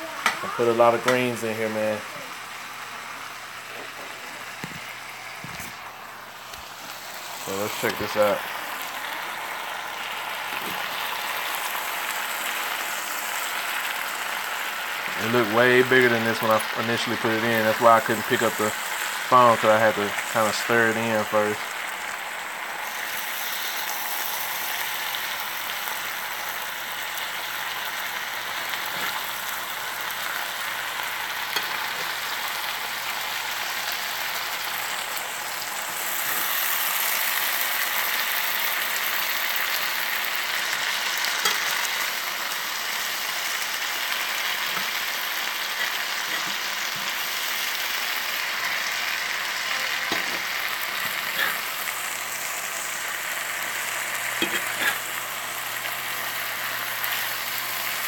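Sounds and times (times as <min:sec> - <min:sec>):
food sizzling in a skillet: 0:00.0 - 0:58.0.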